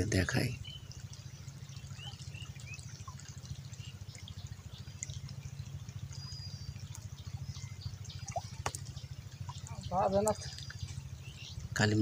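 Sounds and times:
water trickling: 0:00.0 - 0:12.0
wind rumbling on microphone: 0:06.0 - 0:12.0.

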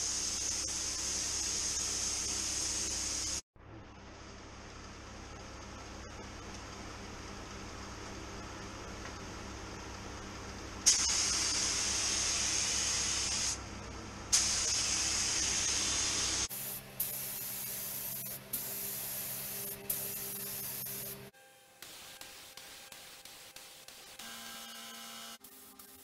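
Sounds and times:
paint spray gun hissing: 0:00.0 - 0:03.4, 0:10.9 - 0:13.6, 0:14.3 - 0:24.5.

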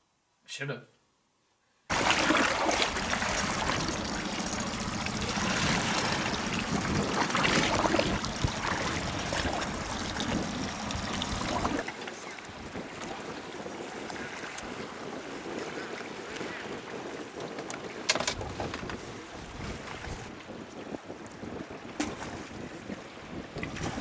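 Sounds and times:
water splashing against boat hull: 0:01.9 - 0:14.7.

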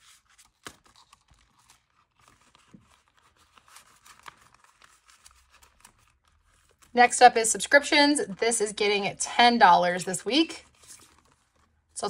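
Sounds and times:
plastic envelope crinkling: 0:00.0 - 0:07.0, 0:10.0 - 0:12.0
banknotes rustling: 0:00.0 - 0:12.0.

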